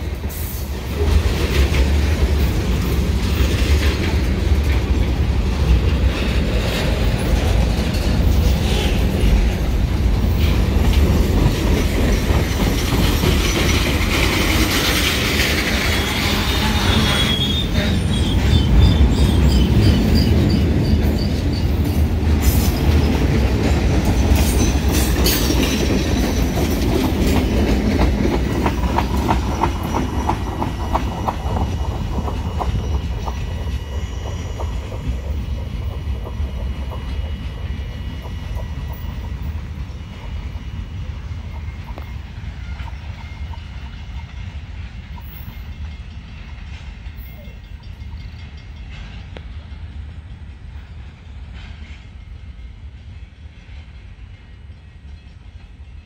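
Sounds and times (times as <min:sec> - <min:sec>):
wheels clacking over rail joints: 0:00.0 - 0:40.7
freight train rumbling past: 0:00.0 - 0:56.0
faint high wheel squeal: 0:15.8 - 0:22.0, 0:29.1 - 0:44.6, 0:47.1 - 0:48.7.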